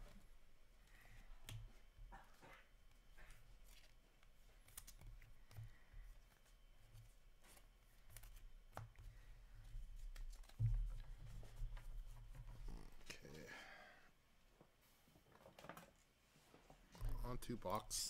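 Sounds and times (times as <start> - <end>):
trading cards rustling and clicking: 2.2 - 8.9.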